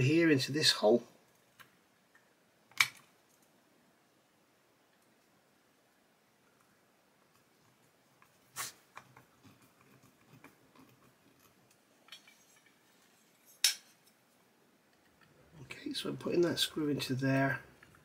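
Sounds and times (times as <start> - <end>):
small parts clicking and tapping: 6.4 - 14.2.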